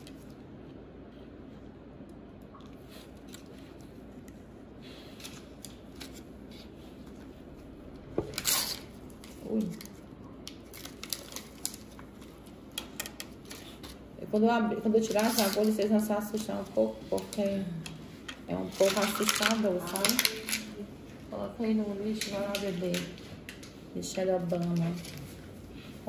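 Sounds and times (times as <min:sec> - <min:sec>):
packaging tearing: 0:08.3 - 0:12.4, 0:15.1 - 0:16.4, 0:18.8 - 0:20.8
wrappers crinkling and clicking: 0:08.3 - 0:14.1, 0:14.9 - 0:25.6.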